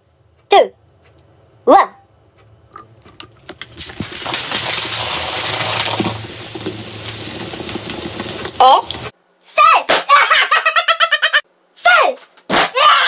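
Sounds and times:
cola fizzing out of bottle: 2.8s - 9.1s.

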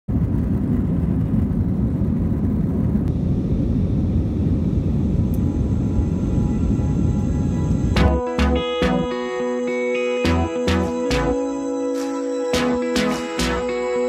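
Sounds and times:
jet engine and airflow rumble: 0.1s - 8.1s.

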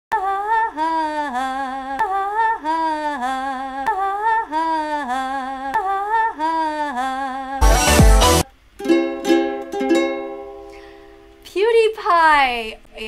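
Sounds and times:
woman singing a looped vowel: 0.1s - 7.8s.

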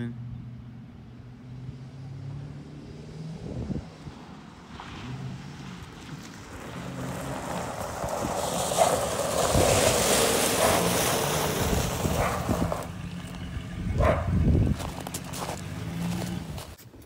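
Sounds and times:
tyres crunching on gravel: 5.6s - 17.0s
engine running low: 8.8s - 16.8s.

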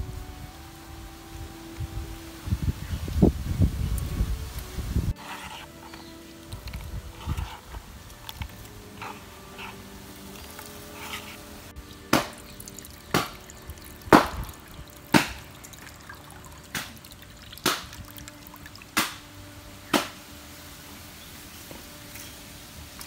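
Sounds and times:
liquid dripping: 5.6s - 19.4s.

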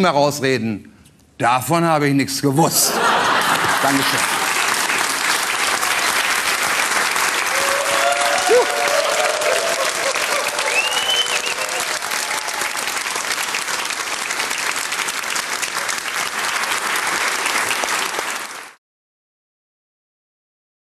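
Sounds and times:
audience applauding: 3.0s - 18.8s
short whistle: 10.7s - 11.8s.

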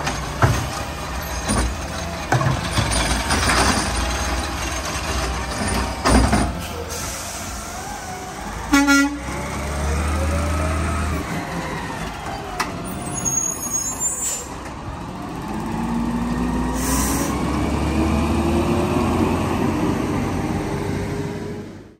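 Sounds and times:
air brake hiss: 6.6s - 7.9s, 16.8s - 17.4s
diesel engine accelerating: 7.0s - 13.4s, 14.6s - 21.9s.

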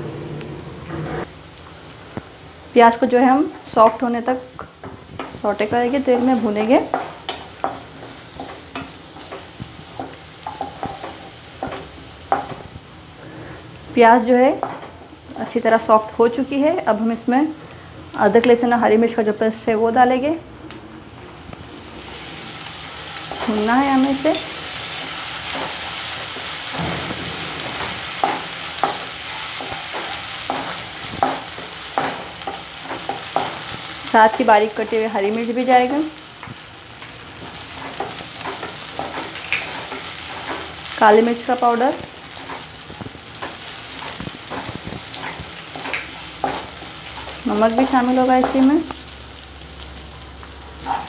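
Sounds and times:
onions sizzling in oil: 1.2s - 19.4s, 21.4s - 51.0s
spatula knocking and scraping pan: 4.8s - 12.7s, 23.2s - 34.7s, 37.4s - 41.0s, 42.3s - 48.7s.

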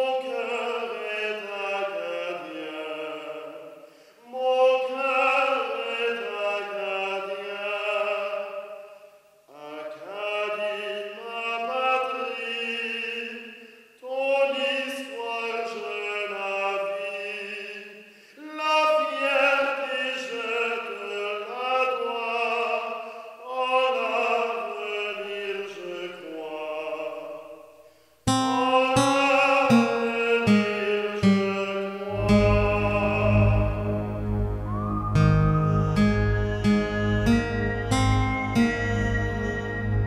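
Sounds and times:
man singing operatically: 0.0s - 8.9s, 9.5s - 27.6s, 28.3s - 34.2s
guitar music: 28.3s - 40.0s.

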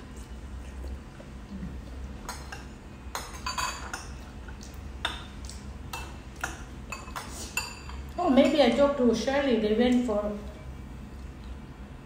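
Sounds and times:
metal spoons clinking on ceramic bowls: 2.3s - 4.2s, 5.9s - 8.6s.

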